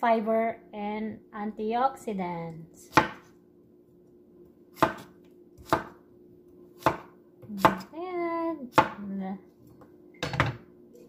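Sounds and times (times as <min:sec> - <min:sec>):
knife chopping on wooden board: 0:02.9 - 0:03.3, 0:04.8 - 0:06.0, 0:06.8 - 0:07.9, 0:08.7 - 0:09.0.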